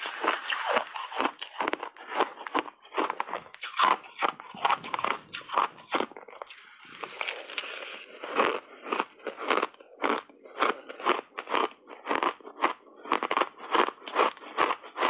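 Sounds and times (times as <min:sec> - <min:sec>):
shaved ice crunching: 0:00.0 - 0:08.6.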